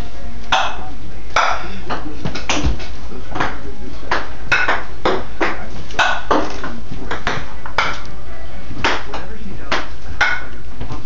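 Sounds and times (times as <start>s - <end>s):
ping-pong ball bouncing on floor: 3.4s - 6.5s, 7.1s - 8.0s, 8.8s - 10.5s.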